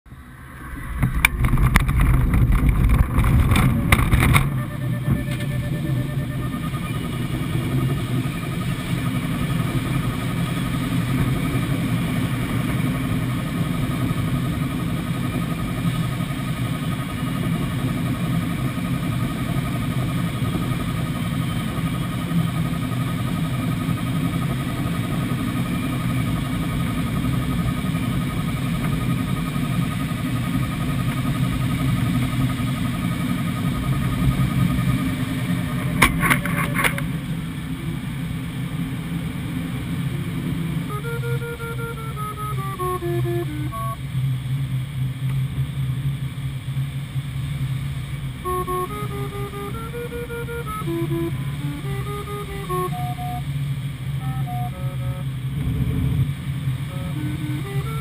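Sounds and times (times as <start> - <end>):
glider rumbling along ground: 0.1 - 58.0
faint high tone: 4.3 - 10.6, 40.9 - 44.0, 48.4 - 53.6, 54.2 - 55.4, 56.9 - 58.0.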